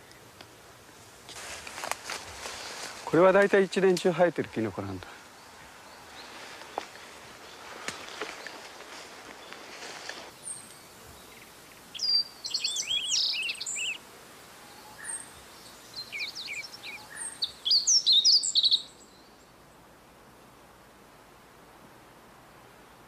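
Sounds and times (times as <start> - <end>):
faint steady hiss: 0.0 - 23.0
songbird chirping: 1.8 - 19.9.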